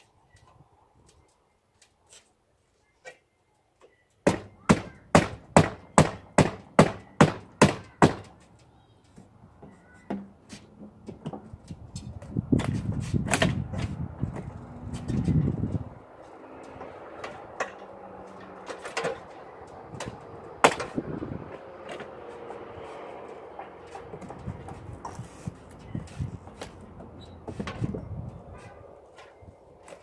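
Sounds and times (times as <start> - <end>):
rough scraping noise: 20.9 - 30.0.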